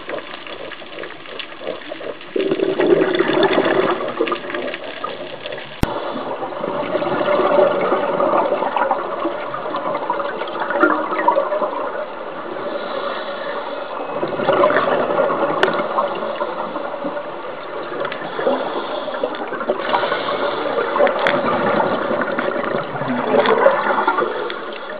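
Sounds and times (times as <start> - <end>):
exhaled bubbles underwater: 0.0 - 24.9
scuba regulator breathing: 12.4 - 14.2, 15.8 - 22.7.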